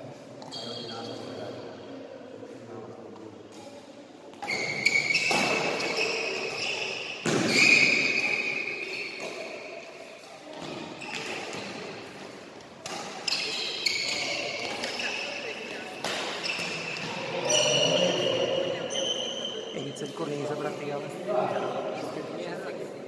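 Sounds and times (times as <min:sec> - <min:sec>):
racket striking shuttlecock: 0:04.4 - 0:06.6, 0:09.2 - 0:09.6, 0:12.8 - 0:15.1, 0:15.9 - 0:17.2
high ringing squeak: 0:04.4 - 0:09.2, 0:17.5 - 0:19.8.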